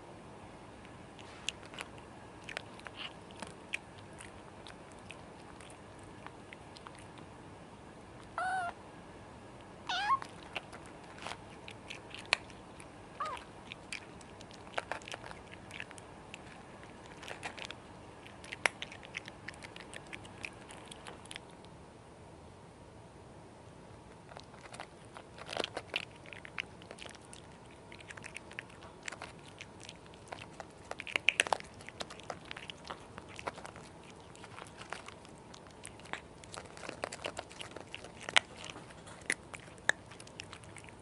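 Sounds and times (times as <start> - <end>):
cats crunching dry kibble: 0.8 - 7.3, 9.9 - 21.7, 24.1 - 41.0
cat meowing: 8.4 - 8.8, 9.8 - 10.4, 13.2 - 13.5.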